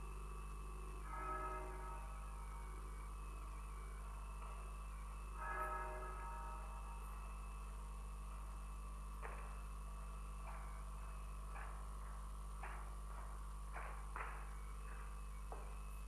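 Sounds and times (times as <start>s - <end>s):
low electrical hum: 0.0s - 16.0s
footsteps on stone path: 10.4s - 15.8s.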